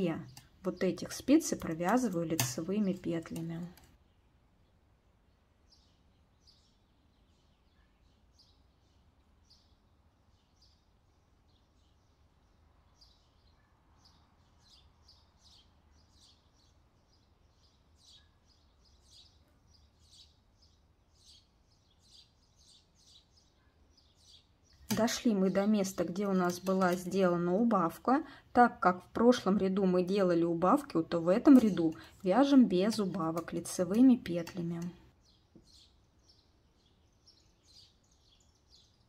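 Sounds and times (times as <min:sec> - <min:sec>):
knitting needles ticking: 0:00.0 - 0:04.0, 0:24.8 - 0:28.1, 0:30.0 - 0:35.2.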